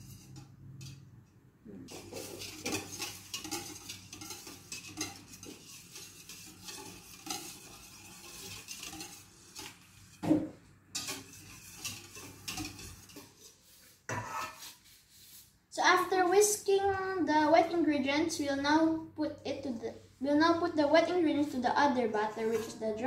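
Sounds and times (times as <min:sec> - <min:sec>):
whisk clinking in metal bowl: 0:01.9 - 0:10.2, 0:10.9 - 0:13.4.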